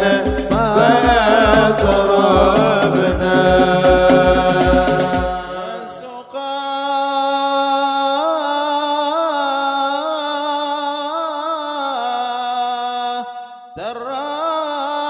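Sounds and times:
frame drums beating: 0.0s - 5.8s
group singing: 0.0s - 6.4s.

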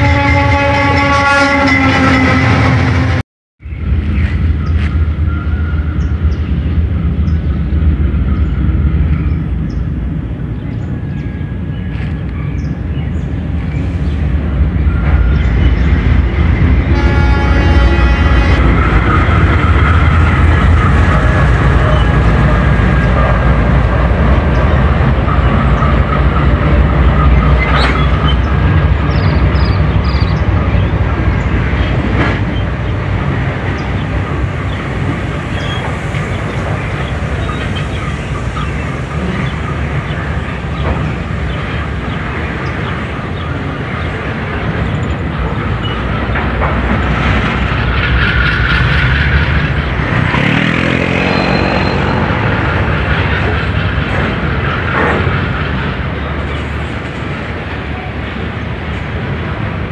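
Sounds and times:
diesel locomotive engine rumble: 0.0s - 59.9s
wheels squealing: 24.2s - 58.4s.

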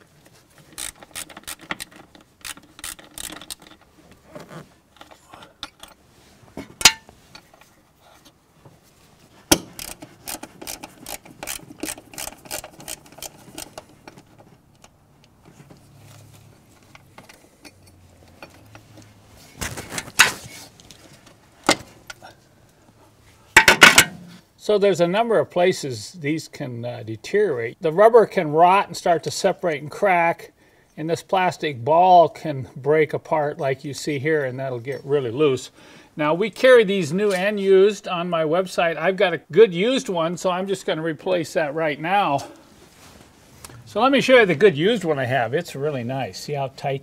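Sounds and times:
screwdriver clicks and scrapes: 0.7s - 3.9s, 9.5s - 15.4s.

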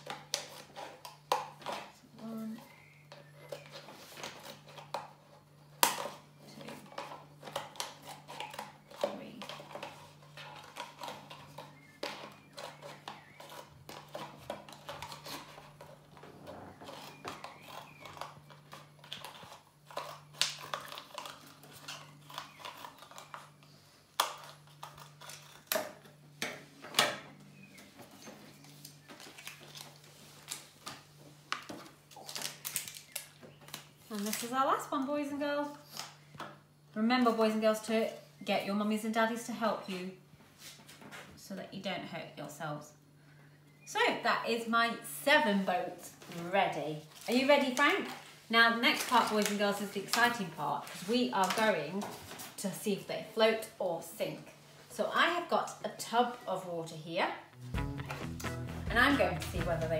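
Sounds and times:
scissors cutting plastic: 0.0s - 16.2s, 16.9s - 26.2s, 31.6s - 34.6s.

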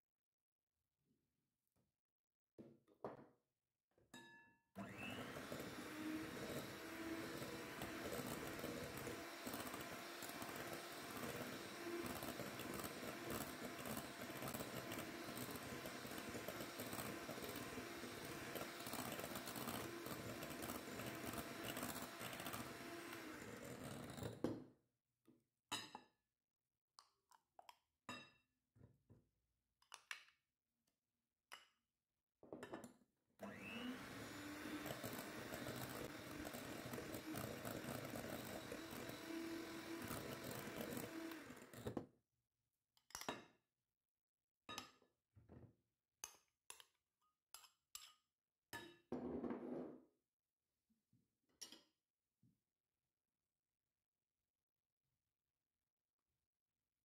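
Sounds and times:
electric hand mixer whirring: 4.8s - 24.5s, 33.4s - 42.0s.

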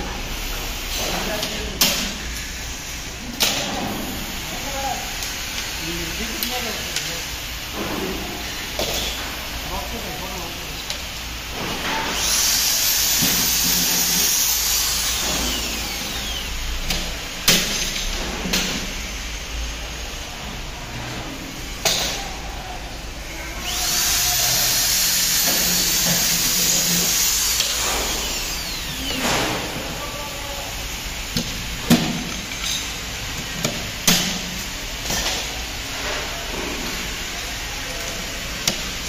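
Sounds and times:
electric drill drilling into metal: 12.0s - 17.0s, 23.6s - 29.6s.

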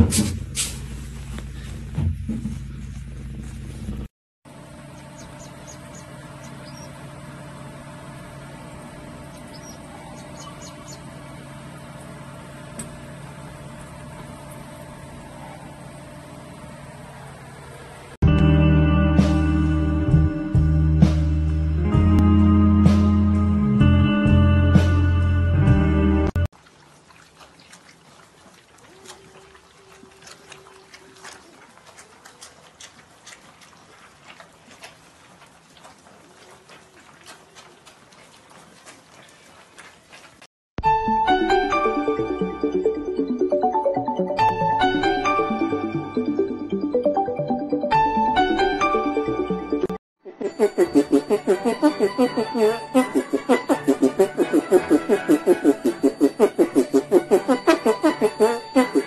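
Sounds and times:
low background hum: 0.4s - 18.2s
puppies eating from dish: 26.6s - 40.4s.

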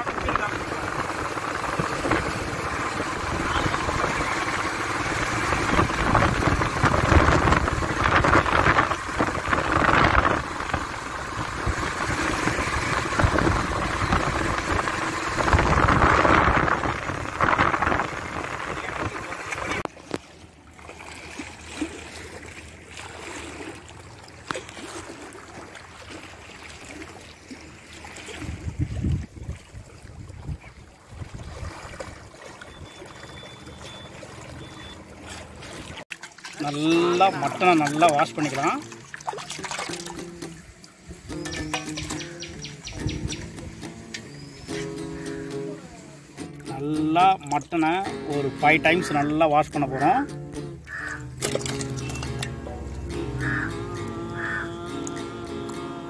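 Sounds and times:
wind buffeting microphone: 0.0s - 19.9s, 28.3s - 32.9s, 41.0s - 45.3s
water lapping against stone: 0.0s - 56.0s.

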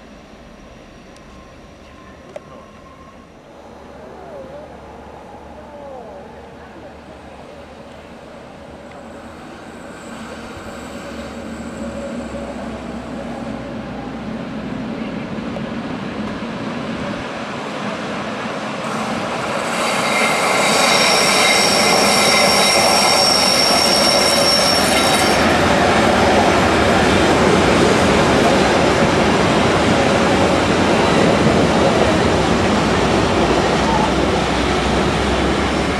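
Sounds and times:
electric locomotive arriving: 0.0s - 35.9s
train wheels squealing: 0.1s - 3.4s, 9.0s - 14.2s, 18.9s - 26.1s.

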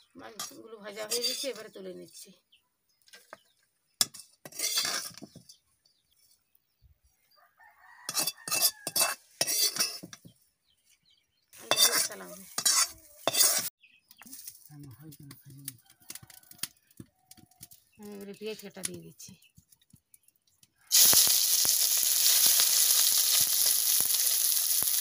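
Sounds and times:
metal ladle scraping a steel pan: 0.4s - 1.6s, 4.0s - 5.6s, 8.1s - 10.2s, 11.6s - 13.7s.

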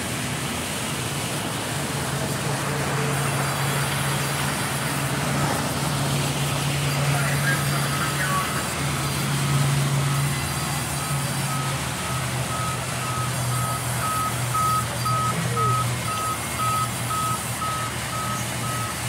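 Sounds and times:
reversing alarm beeping: 9.6s - 19.0s.

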